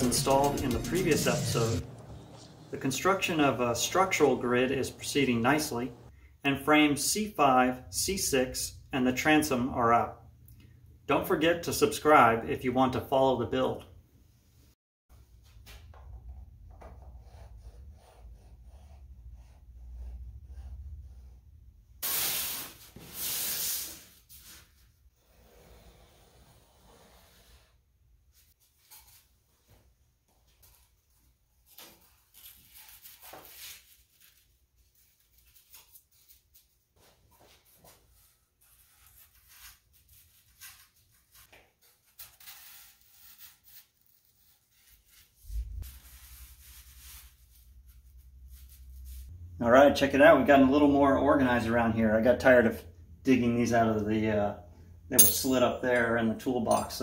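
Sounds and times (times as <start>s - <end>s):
steady low hum: 0.0s - 6.1s
rubbing on paper: 17.0s - 21.3s, 32.3s - 49.3s
pencil strokes on paper: 17.0s - 21.4s
paper rustling scrapes: 37.4s - 49.3s.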